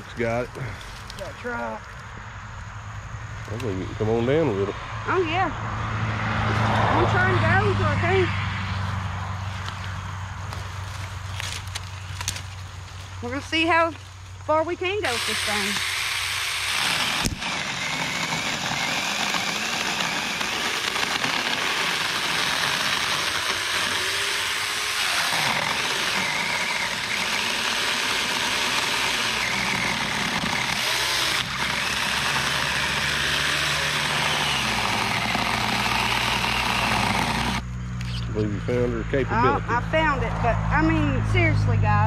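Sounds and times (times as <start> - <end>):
mini chainsaw cutting wood: 14.9 - 38.2.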